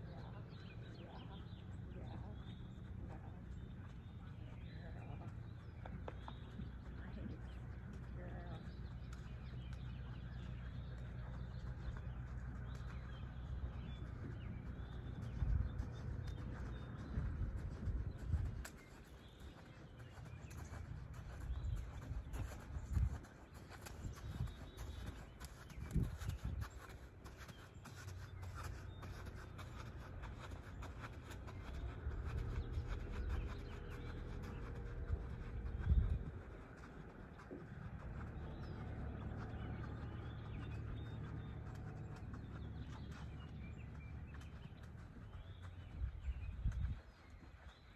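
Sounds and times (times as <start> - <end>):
birds chirping: 0.0 - 47.9
low outdoor rumble: 0.0 - 47.9
wind on microphone: 17.0 - 18.8, 21.4 - 23.2, 23.8 - 26.8, 35.0 - 36.6, 45.8 - 47.2.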